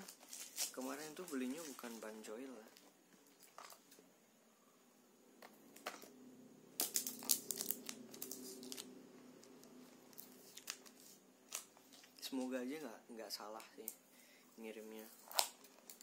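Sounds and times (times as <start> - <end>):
packaging crinkling and tearing: 0.0 - 2.3, 6.8 - 12.3
faint steady hum: 0.0 - 16.0.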